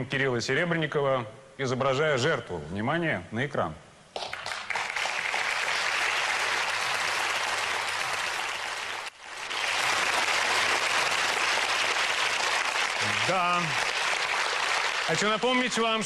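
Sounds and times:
audience applauding: 4.2 - 16.0.

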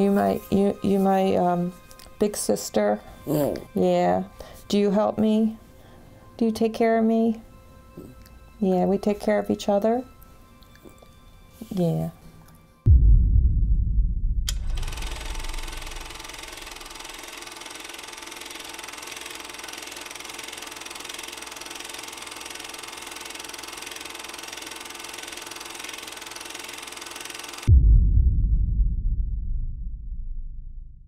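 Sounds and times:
deep low rumble: 12.9 - 16.3, 27.7 - 31.0
droning hiss with humming tones: 14.5 - 17.3.

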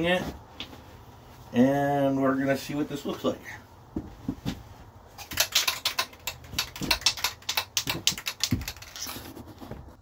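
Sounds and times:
spray can ball rattling: 5.2 - 9.3.

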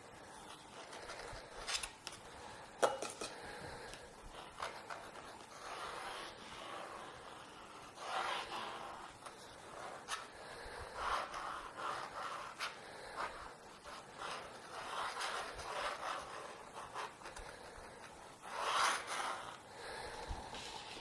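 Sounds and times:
pen nib scratching on paper: 4.3 - 19.6.

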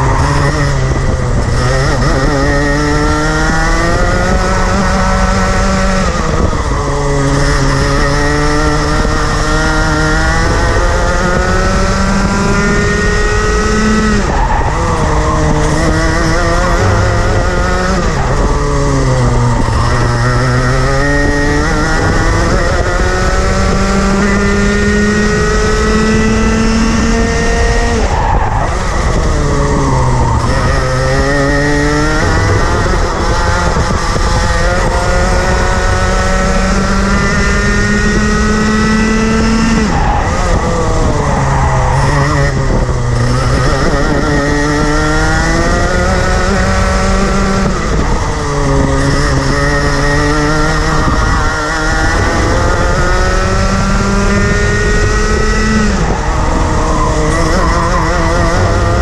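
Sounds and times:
kart engine racing: 0.0 - 59.0.

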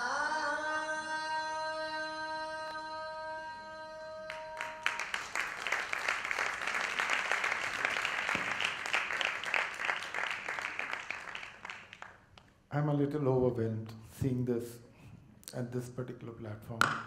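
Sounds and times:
indian classical music: 0.0 - 5.8
audience applause: 4.3 - 12.2.

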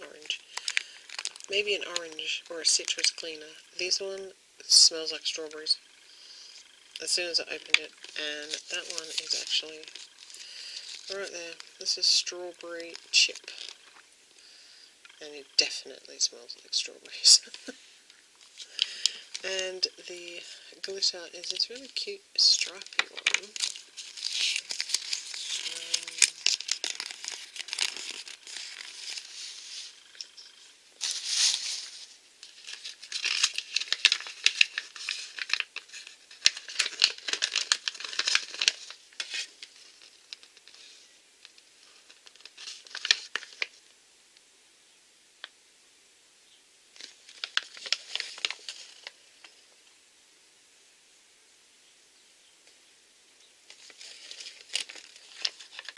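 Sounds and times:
paper and packaging rustling: 0.0 - 4.0, 6.6 - 14.1, 15.5 - 17.8, 18.4 - 43.8, 47.0 - 49.6, 53.7 - 55.9.

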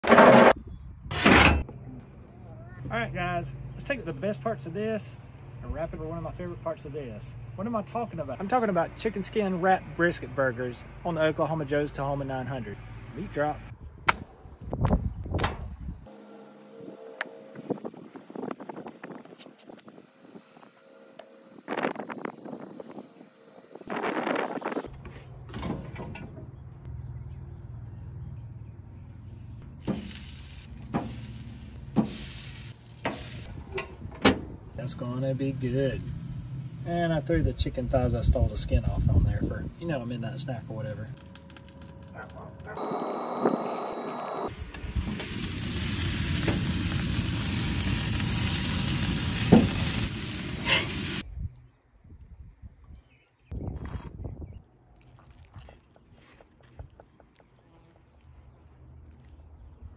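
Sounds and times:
grill fan motor humming: 16.1 - 24.8, 39.3 - 50.7
meat sizzling on grates: 29.6 - 33.5, 35.2 - 37.3, 39.5 - 51.2.

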